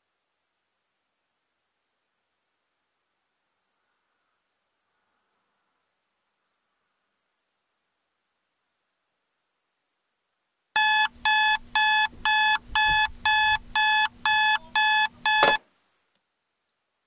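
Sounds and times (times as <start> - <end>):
alarm clock beeping: 10.8 - 15.6.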